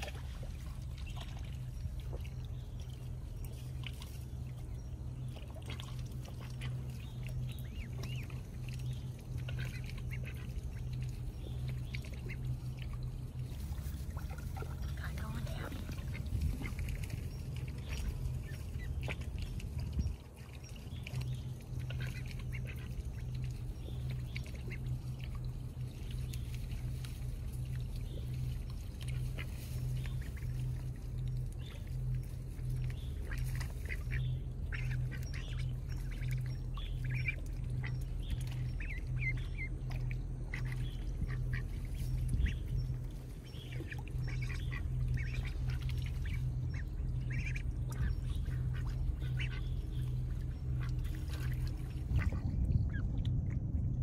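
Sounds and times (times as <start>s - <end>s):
low rumble: 0.0s - 54.0s
ducks quacking: 5.6s - 19.4s, 21.1s - 25.4s, 29.0s - 53.0s.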